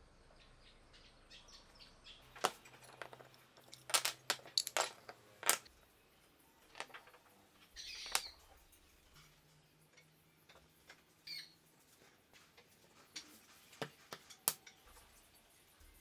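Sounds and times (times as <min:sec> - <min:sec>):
sparrow chirping: 0:00.4 - 0:02.3, 0:07.7 - 0:08.4, 0:11.2 - 0:11.6.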